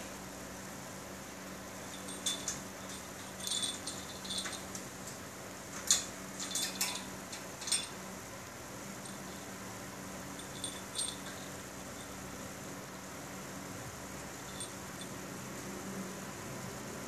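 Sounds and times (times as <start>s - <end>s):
wire cage clinking and rattling: 1.8s - 8.0s, 10.3s - 12.2s, 14.4s - 15.2s.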